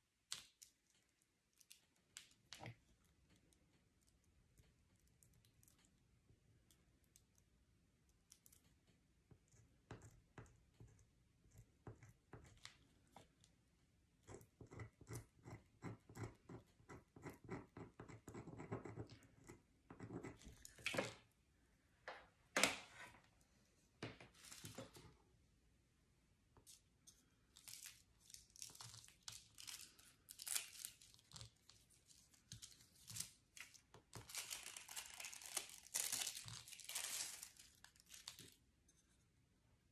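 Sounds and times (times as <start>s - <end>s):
crinkling scrapes: 26.6s - 39.3s.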